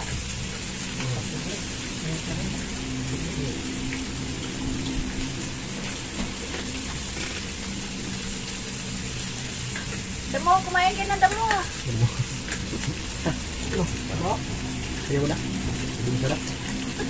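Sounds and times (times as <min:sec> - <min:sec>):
low hum: 0:00.0 - 0:17.0
pork sizzling in grill pan: 0:00.0 - 0:17.0.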